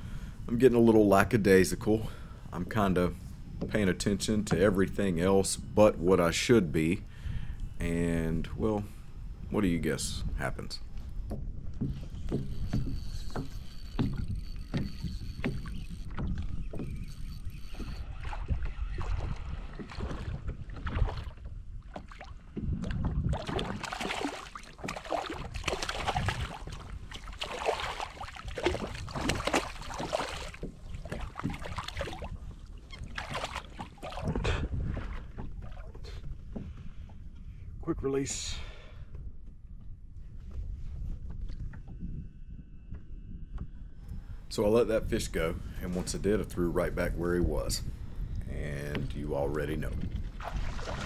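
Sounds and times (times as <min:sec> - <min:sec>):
gear knocking on kayak hull: 0:11.2 - 0:17.1
fish splashing and thrashing: 0:11.8 - 0:36.6, 0:50.1 - 0:51.0.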